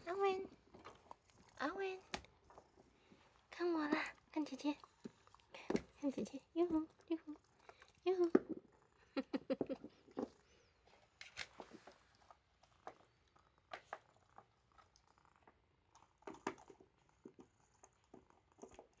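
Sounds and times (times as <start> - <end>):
dog gnawing on a chew: 0.5 - 3.5, 11.1 - 19.0.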